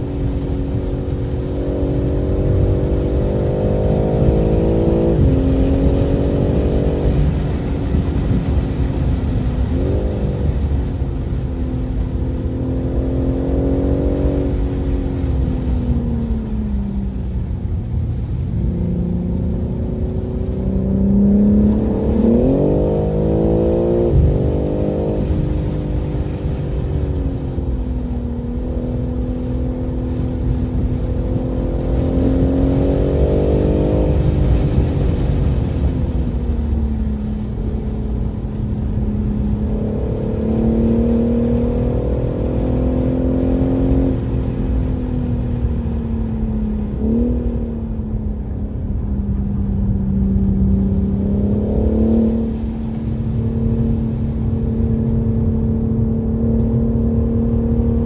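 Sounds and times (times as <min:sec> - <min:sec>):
car engine revving: 0:00.0 - 0:58.0
low rumble: 0:00.0 - 0:58.0.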